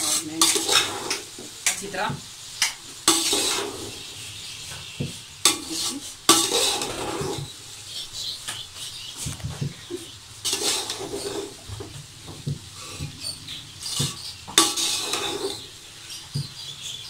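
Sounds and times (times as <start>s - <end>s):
metal spoon scraping a pot: 0.0s - 1.8s, 2.6s - 4.1s, 5.4s - 7.6s, 10.4s - 11.6s, 12.8s - 15.8s.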